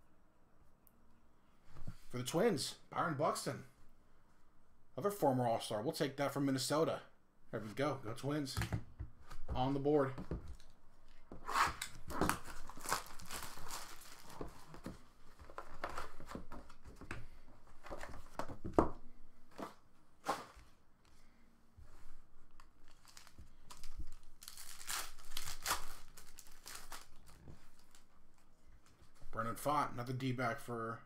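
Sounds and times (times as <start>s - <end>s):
cardboard rustling and scraping: 11.2s - 18.9s, 19.5s - 20.8s
foil pack crinkling and tearing: 11.8s - 14.8s, 22.8s - 28.0s.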